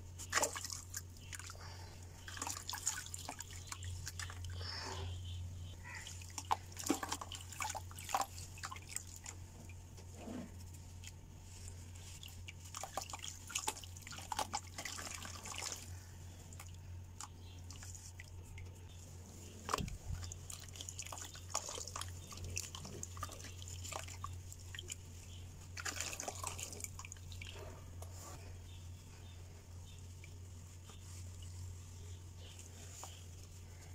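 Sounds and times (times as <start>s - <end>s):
small splashes in water: 0.2s - 4.5s, 6.0s - 9.4s, 12.0s - 15.9s, 19.6s - 27.6s.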